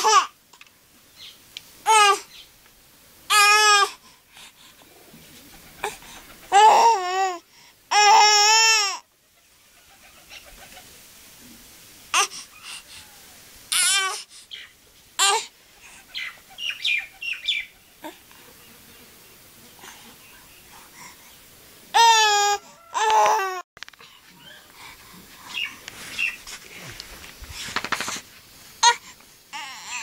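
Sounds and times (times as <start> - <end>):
toddler babbling and squealing: 1.9 - 2.2, 6.5 - 9.0, 13.7 - 14.2, 22.0 - 23.6.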